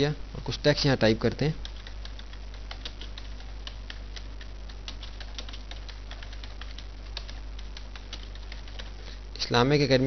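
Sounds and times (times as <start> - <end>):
steady low hum: 0.0 - 10.0
computer keyboard typing: 1.4 - 9.0.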